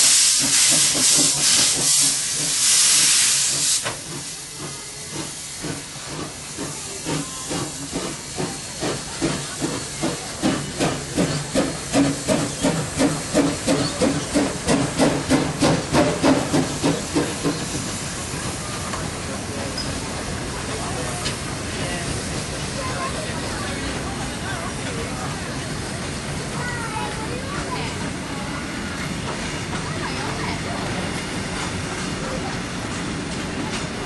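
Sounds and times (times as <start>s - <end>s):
steam locomotive exhaust chuffs: 0.0s - 22.9s
loud steam hiss: 0.0s - 34.0s.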